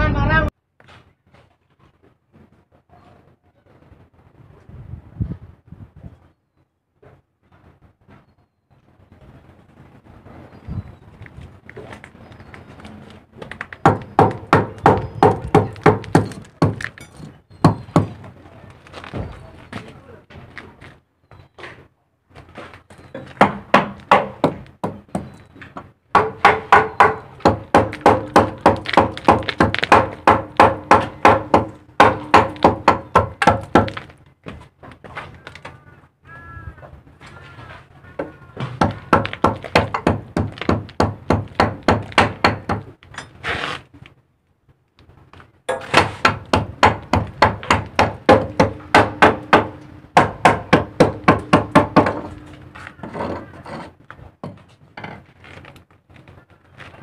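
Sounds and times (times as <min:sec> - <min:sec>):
hammer ringing on metal: 0:46.9 - 0:52.8.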